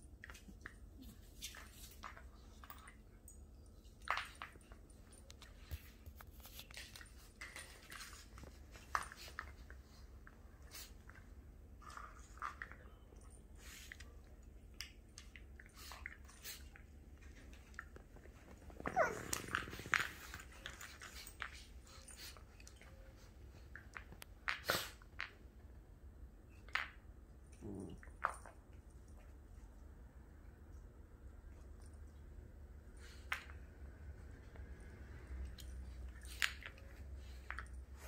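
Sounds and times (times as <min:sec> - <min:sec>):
low growl: 0:27.6 - 0:28.0.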